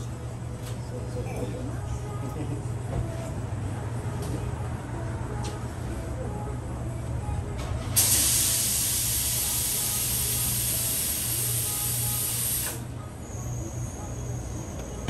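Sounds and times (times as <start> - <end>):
pressurised gas hissing: 8.0 - 12.8.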